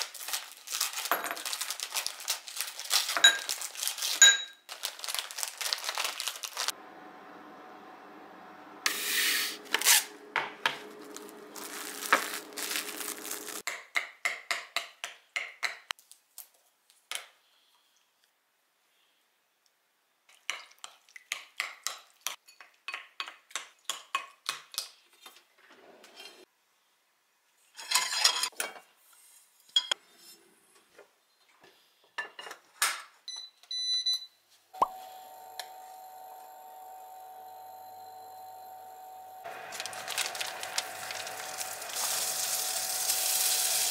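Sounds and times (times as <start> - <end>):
cling wrap crinkling: 0.0 - 6.7, 10.7 - 13.6, 39.4 - 42.4
induction hob humming: 6.7 - 13.6, 34.8 - 43.9.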